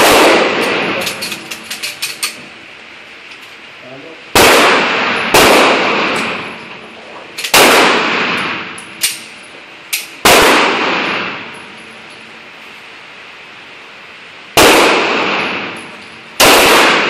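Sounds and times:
pistol shots echoing indoors: 0:00.0 - 0:01.6, 0:04.3 - 0:06.5, 0:07.4 - 0:09.2, 0:10.0 - 0:11.5, 0:14.6 - 0:17.0.

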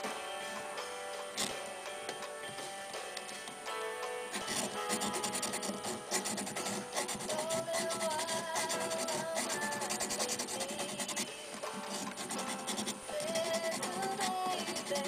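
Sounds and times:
slow background music: 0:00.0 - 0:15.0
scratchy rubbing with abrasive: 0:04.3 - 0:15.0.

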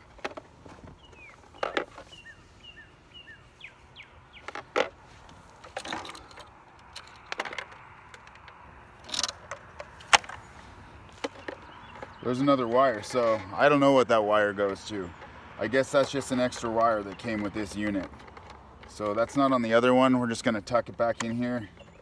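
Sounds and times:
bird chirping: 0:00.7 - 0:04.8, 0:10.2 - 0:19.7, 0:21.0 - 0:22.0
plastic parts clicking: 0:05.6 - 0:10.4, 0:14.6 - 0:22.0.

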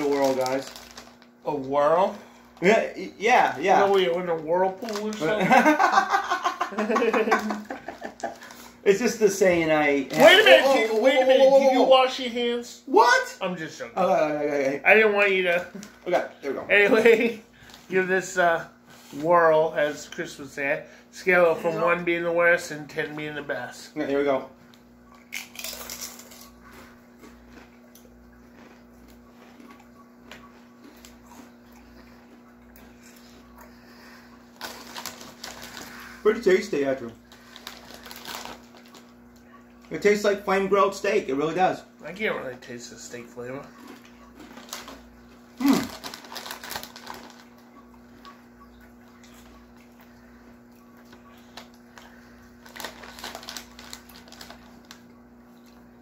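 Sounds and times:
chewing crisp potato chips: 0:00.0 - 0:02.8, 0:03.6 - 0:05.4, 0:07.2 - 0:09.2, 0:24.6 - 0:41.0, 0:42.5 - 0:56.0
steady low hum: 0:00.0 - 0:56.0.

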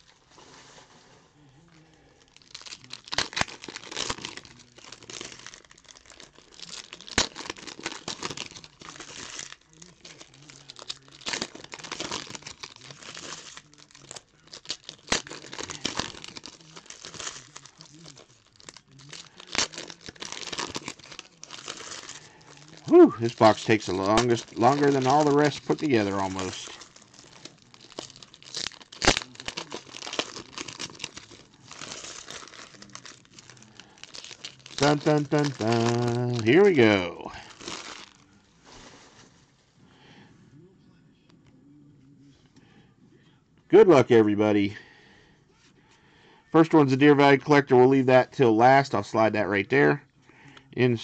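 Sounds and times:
wrapper crinkling and tearing: 0:00.0 - 0:00.7, 0:01.9 - 0:39.4.

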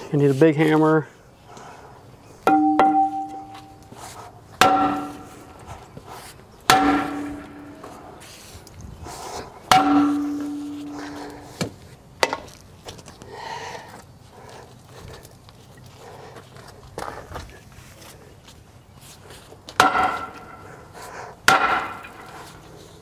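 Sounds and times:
sledgehammer striking brake drum: 0:02.5 - 0:03.8, 0:04.6 - 0:05.6, 0:06.7 - 0:08.0, 0:09.7 - 0:11.0, 0:19.8 - 0:20.6.

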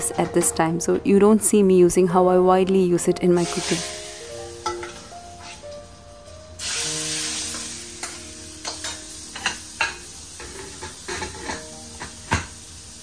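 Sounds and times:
soft background music: 0:00.0 - 0:13.0
seeds sizzling in hot oil: 0:03.4 - 0:13.0.

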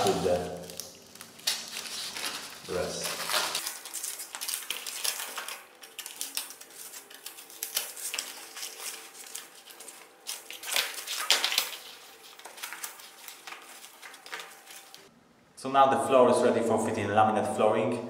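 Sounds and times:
foil crinkling and rustling: 0:00.0 - 0:15.1.

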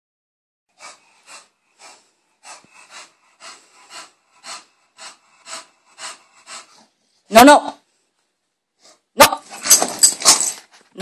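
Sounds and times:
dog breathing heavily: 0:00.7 - 0:07.3.

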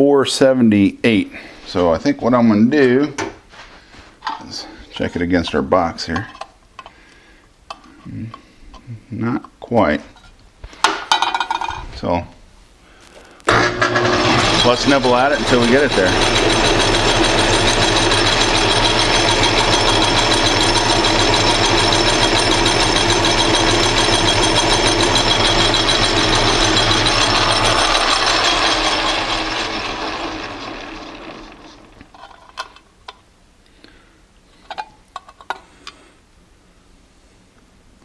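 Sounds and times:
metal lathe running: 0:13.5 - 0:32.6.

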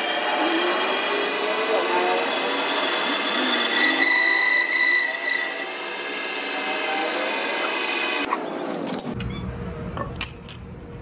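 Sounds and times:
high-pitched whine: 0:00.0 - 0:05.8
metal lathe cutting: 0:00.0 - 0:08.3.

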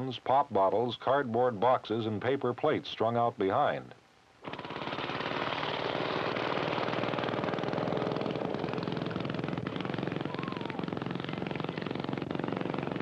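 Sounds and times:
small go-kart engine running: 0:04.4 - 0:13.0.

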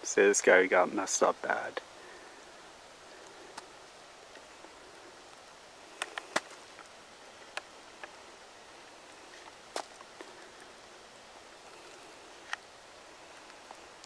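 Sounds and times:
outdoor hiss: 0:00.0 - 0:14.0
footsteps snapping on leaf litter: 0:05.9 - 0:06.9, 0:09.3 - 0:10.4.

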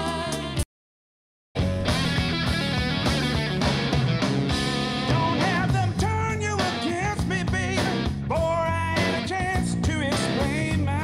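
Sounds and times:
rock music through speakers: 0:01.6 - 0:11.0.

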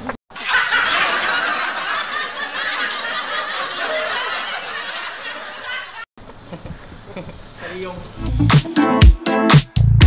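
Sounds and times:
laugh track of people laughing: 0:00.3 - 0:07.5.

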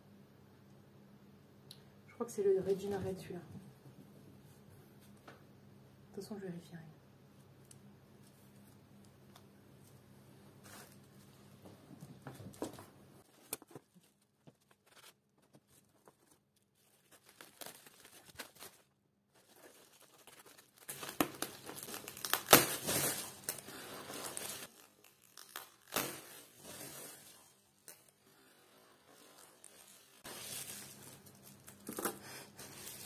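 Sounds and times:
bubble wrap crinkling: 0:08.2 - 0:33.0.

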